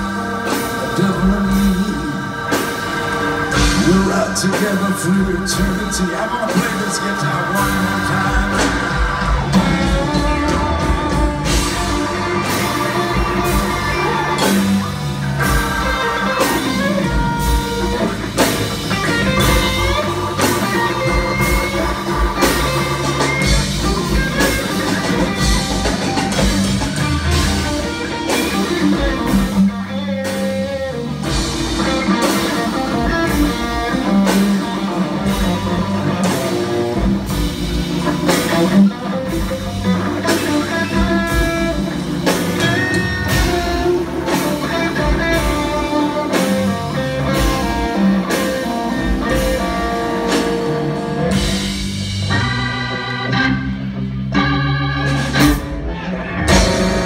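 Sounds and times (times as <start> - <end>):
drum kit beat: 0.0 - 57.0
electric guitar: 0.0 - 57.0.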